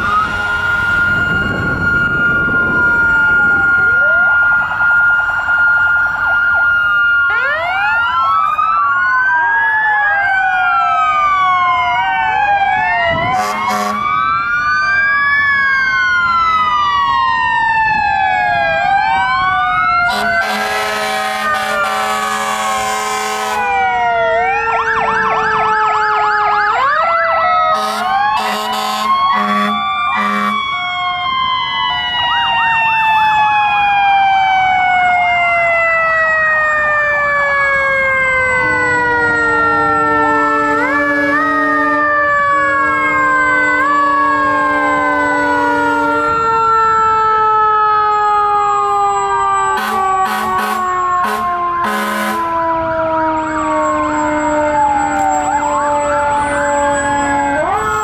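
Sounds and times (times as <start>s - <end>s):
fire truck sirens wailing: 0.0s - 58.0s
air horn blasts: 13.2s - 14.1s, 20.1s - 23.7s, 27.7s - 30.6s, 49.7s - 52.6s.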